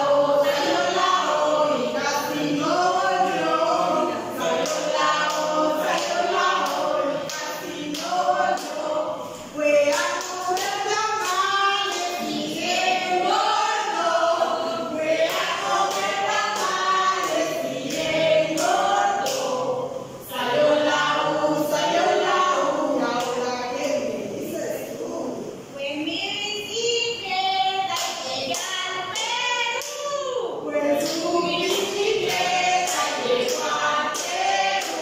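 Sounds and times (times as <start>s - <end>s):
women singing together: 0.0s - 35.0s
hand clapping: 4.4s - 9.0s, 9.7s - 13.4s, 15.2s - 19.6s, 28.0s - 30.1s, 30.8s - 35.0s.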